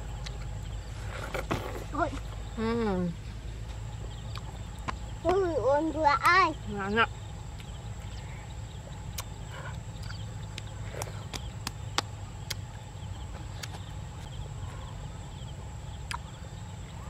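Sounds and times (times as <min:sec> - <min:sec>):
watermelon crunching being chewed: 0:04.2 - 0:05.2, 0:09.1 - 0:14.4.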